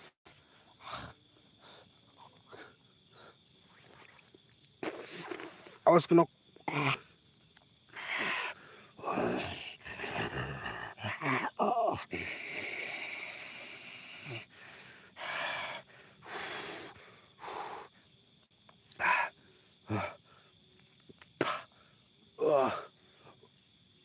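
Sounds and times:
person breathing heavily: 7.9s - 11.2s, 12.0s - 18.1s.

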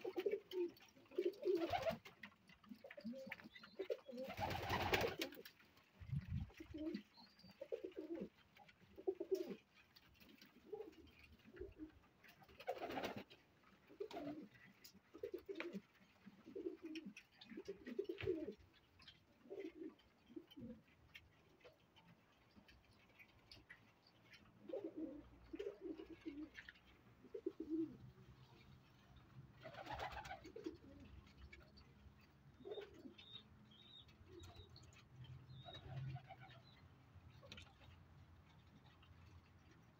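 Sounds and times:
pigeons cooing: 0.0s - 13.3s, 13.9s - 21.0s, 24.6s - 28.7s, 29.6s - 31.8s, 32.6s - 36.8s.

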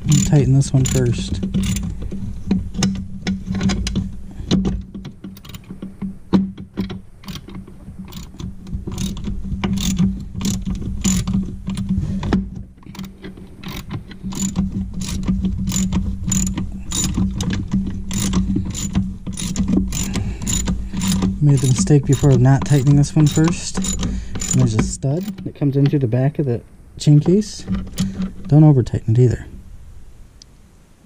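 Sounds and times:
ratchet clicking: 0.0s - 1.9s, 5.3s - 5.8s, 6.8s - 11.9s, 12.8s - 25.5s
steady low hum: 0.0s - 31.0s.

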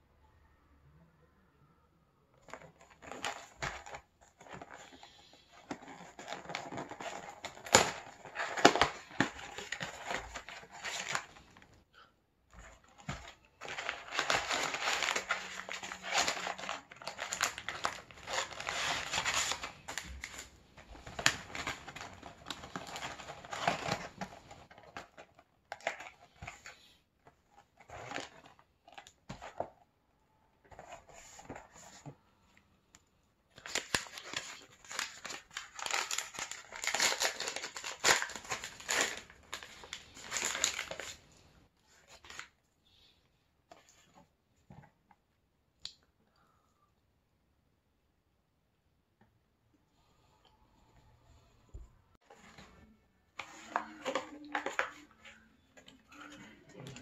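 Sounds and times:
plastic wrapper crinkling: 12.8s - 26.1s, 33.6s - 41.4s, 53.4s - 57.0s.

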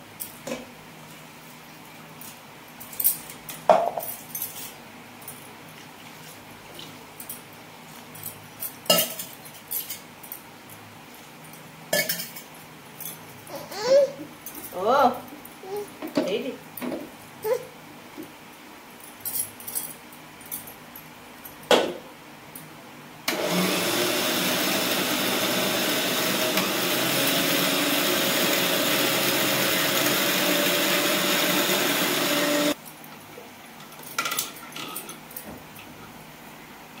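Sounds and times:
mixer grinder whirring: 23.3s - 32.8s.

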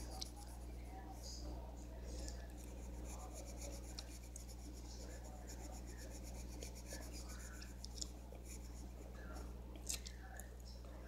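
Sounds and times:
steady low hum: 0.0s - 11.0s
pencil scratching on paper: 2.3s - 9.4s.

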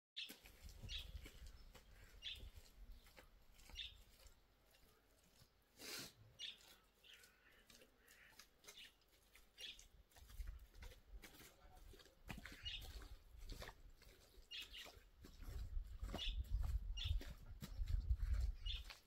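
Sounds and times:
bird chirps: 0.2s - 4.2s, 6.4s - 9.9s, 12.4s - 13.2s, 14.4s - 19.0s.

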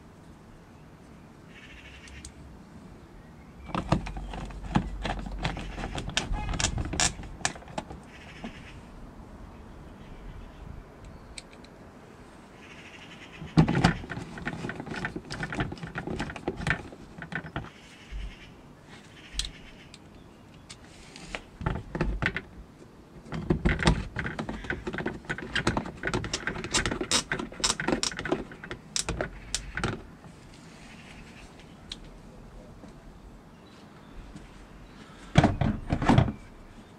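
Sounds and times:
screwdriver clicking and rattling: 3.7s - 8.0s, 23.7s - 30.0s.

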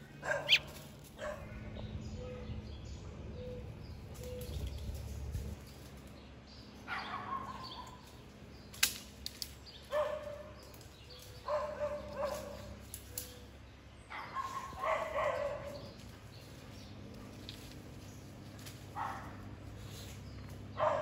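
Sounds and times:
sharp snap: 8.7s - 9.6s.

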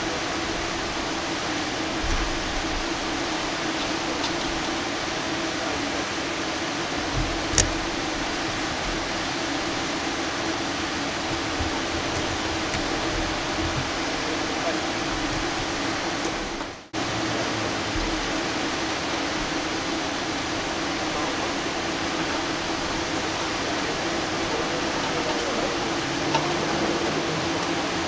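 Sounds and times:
low steady hum: 0.0s - 28.0s
steady hiss: 0.0s - 28.0s
sharp click: 7.5s - 7.8s.

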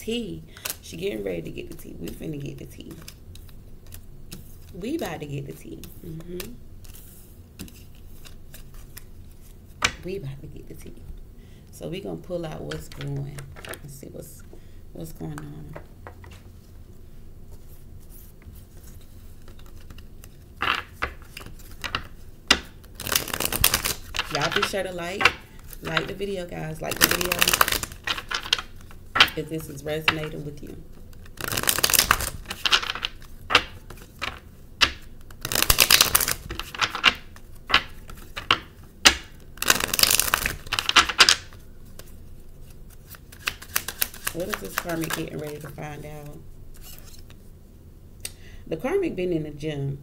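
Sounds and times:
cards shuffling: 0.6s - 10.1s, 17.5s - 47.4s.

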